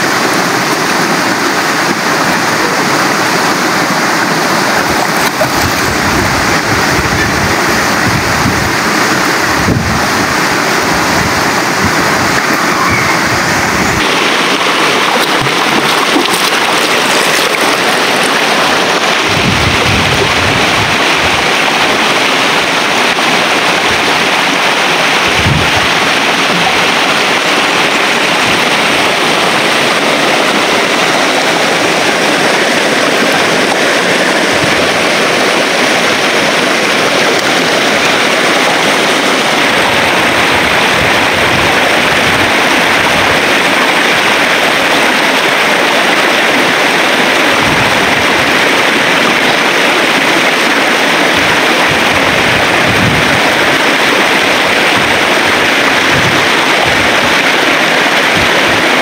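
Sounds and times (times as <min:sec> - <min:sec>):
person swimming splashing: 0:00.0 - 0:07.8, 0:08.8 - 0:22.1
river rushing over rocks: 0:00.0 - 0:59.0.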